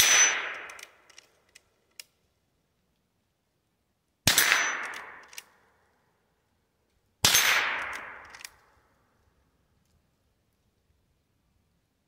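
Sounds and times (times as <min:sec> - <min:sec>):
rifle shots: 0:00.0 - 0:00.9, 0:04.3 - 0:05.4, 0:07.2 - 0:08.5.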